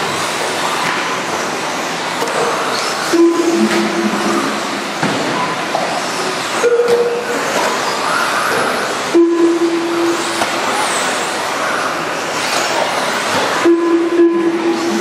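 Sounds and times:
steady low tone: 0:03.1 - 0:05.0, 0:13.6 - 0:15.0.

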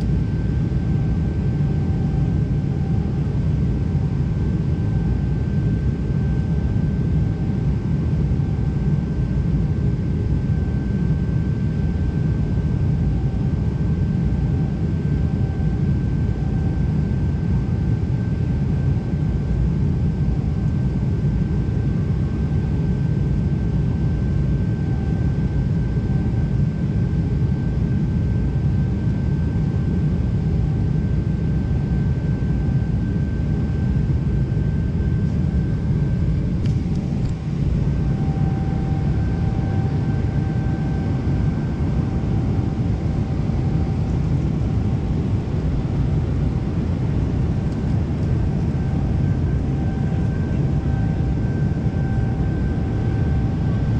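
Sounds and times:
faint steady whine: 0:00.0 - 0:53.9
airliner cabin rumble: 0:31.6 - 0:53.9.

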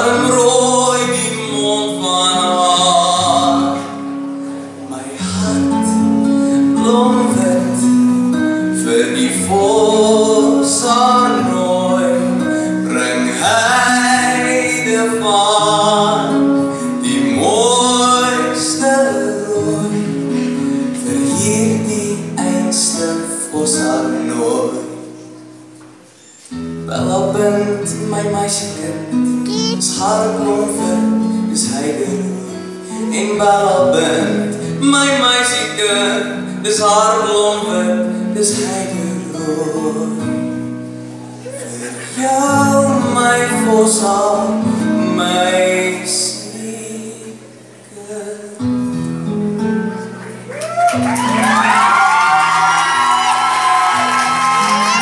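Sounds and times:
man singing into a microphone: 0:00.0 - 0:25.3, 0:26.8 - 0:40.8, 0:41.4 - 0:49.0.

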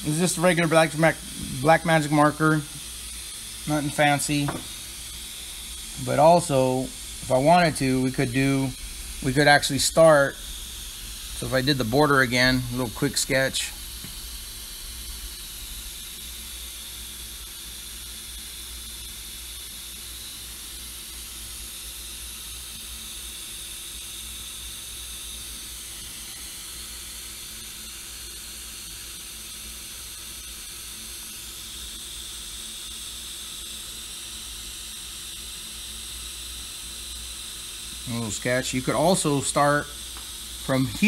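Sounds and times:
steady hiss: 0:00.0 - 0:16.9, 0:38.0 - 0:41.0.

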